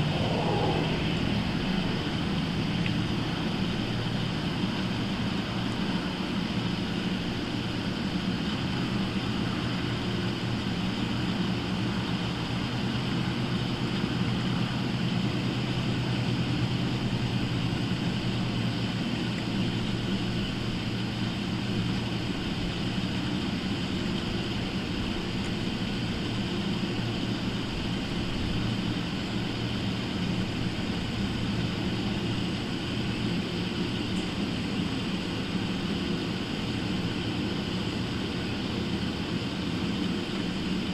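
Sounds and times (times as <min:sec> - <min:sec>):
constant hiss: 0:00.0 - 0:40.9
low machine hum: 0:00.0 - 0:40.9.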